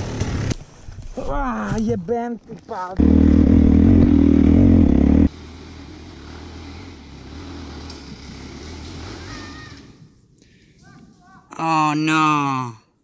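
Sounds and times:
dirt bike engine running: 3.0s - 5.3s.

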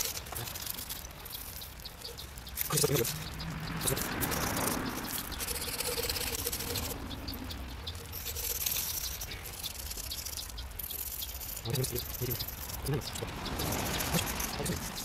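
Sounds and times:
fingertips rubbing chalk: 0.0s - 7.0s, 7.6s - 15.0s
chalk scraping on asphalt: 8.1s - 15.0s.

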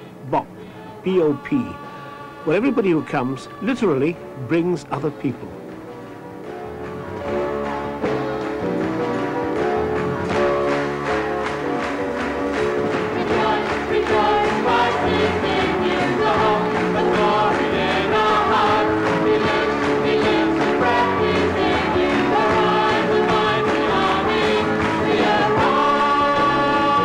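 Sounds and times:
keyboard: 0.0s - 27.0s
person singing: 0.3s - 4.9s.

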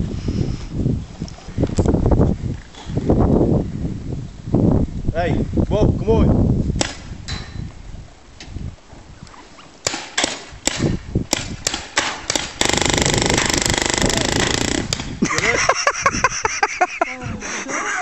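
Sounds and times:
paintball gun pops: 6.8s - 7.5s, 9.8s - 12.6s, 14.3s - 15.5s
voices: 15.2s - 18.0s.

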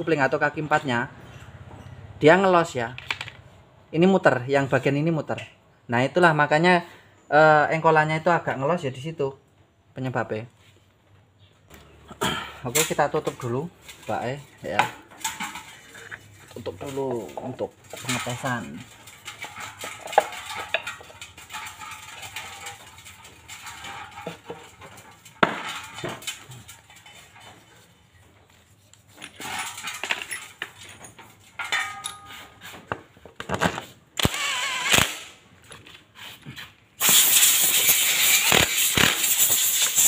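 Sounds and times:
cordless impact driver running: 34.2s - 35.3s.

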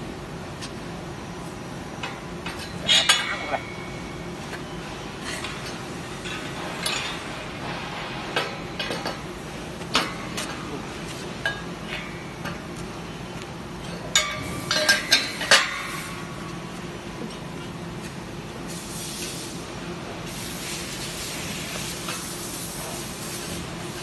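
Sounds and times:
metal clinks and clanks: 2.0s - 4.2s
steady hiss: 18.6s - 24.0s.

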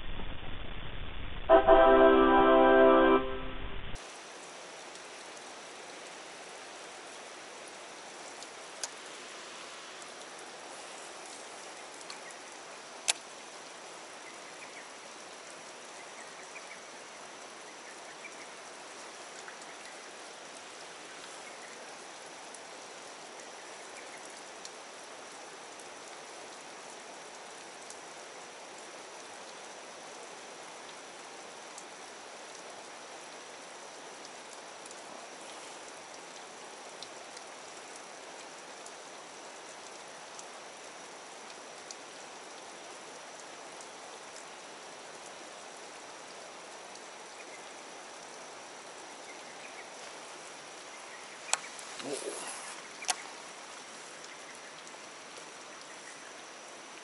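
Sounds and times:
rain falling on water: 0.0s - 3.4s, 4.0s - 57.0s
faint ticks: 7.6s - 9.2s, 11.1s - 15.3s, 17.9s - 29.6s, 31.6s - 32.8s, 33.9s - 44.6s, 50.8s - 53.3s, 54.2s - 57.0s.

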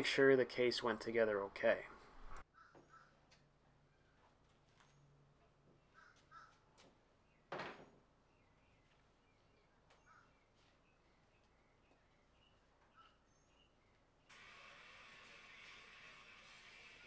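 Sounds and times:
crow cawing: 2.5s - 3.2s, 5.9s - 6.6s.

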